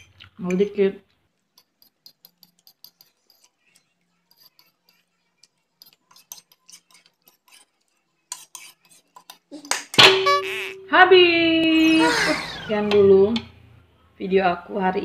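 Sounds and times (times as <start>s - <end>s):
fork scraping a plate: 0.0s - 0.3s, 1.4s - 9.5s.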